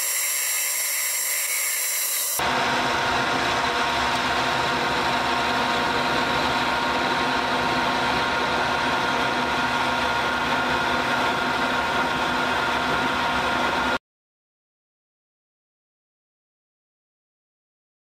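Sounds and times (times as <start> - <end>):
metal lathe running: 0.0 - 14.0.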